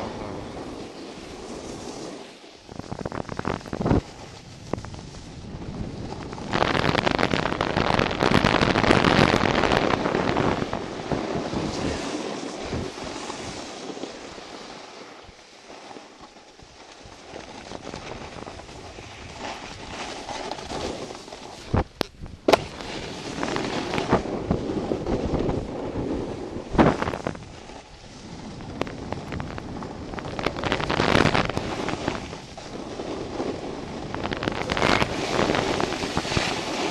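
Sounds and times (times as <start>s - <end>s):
wind rushing over microphone: 0.0s - 15.5s, 16.1s - 36.9s
snowboard scraping over snow: 0.0s - 36.9s.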